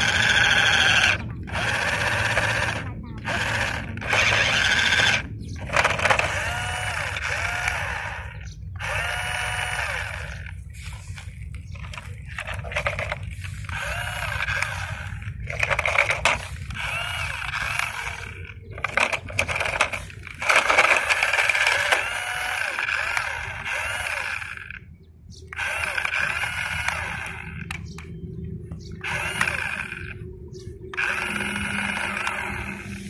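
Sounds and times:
wheels over gravel: 0.0s - 24.8s
toy truck electric motor whining: 0.0s - 24.9s, 25.5s - 28.1s, 29.0s - 30.2s, 30.9s - 33.0s.

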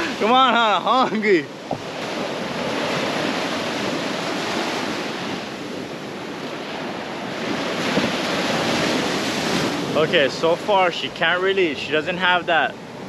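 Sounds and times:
small waves breaking on sand: 0.0s - 13.0s.

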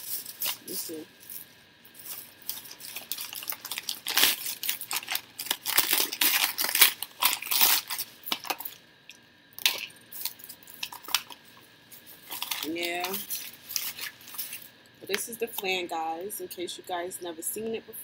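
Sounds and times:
packaging crinkling and rustling: 0.0s - 8.8s, 9.6s - 14.8s.

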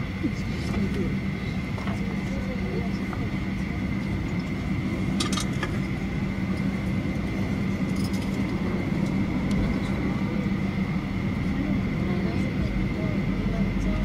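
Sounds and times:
jet engines humming with whine: 0.0s - 14.0s.

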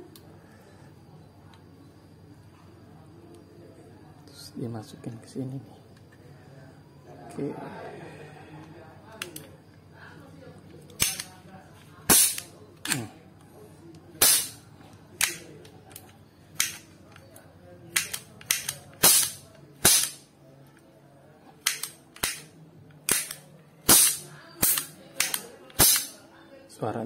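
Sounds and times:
toy cap gun pops: 11.0s - 11.4s, 12.1s - 13.1s, 14.2s - 14.6s, 15.2s - 15.5s, 16.6s - 16.9s, 17.9s - 20.2s, 21.6s - 26.2s.

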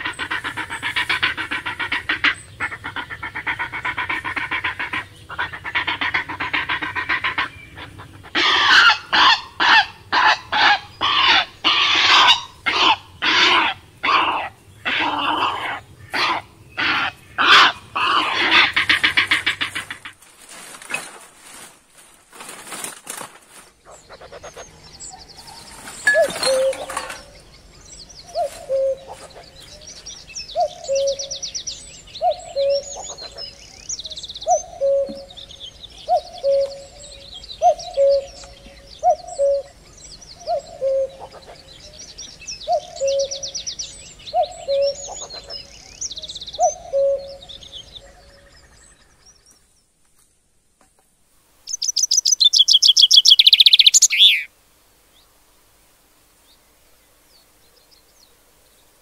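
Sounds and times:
small birds chirping and trilling: 0.0s - 50.0s, 51.6s - 54.5s
rustling noise: 18.8s - 24.1s, 25.4s - 27.4s, 28.3s - 30.1s.

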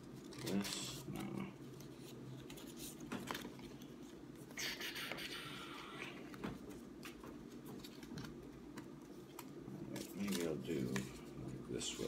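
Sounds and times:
paper rustling and scraping: 1.8s - 4.2s, 9.9s - 12.0s.

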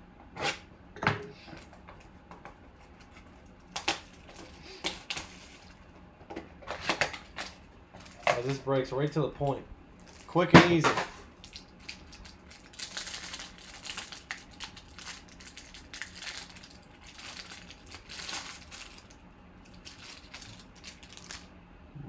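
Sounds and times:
plastic wrapper crinkling: 3.1s - 5.8s, 10.0s - 10.4s, 11.3s - 21.5s.

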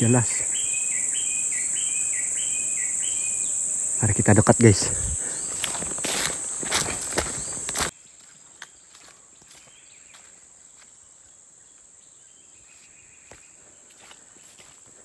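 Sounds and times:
high insect whine: 0.0s - 15.0s
footsteps through undergrowth: 4.8s - 11.0s, 12.6s - 15.0s
twigs crackling and snapping: 5.5s - 7.9s.

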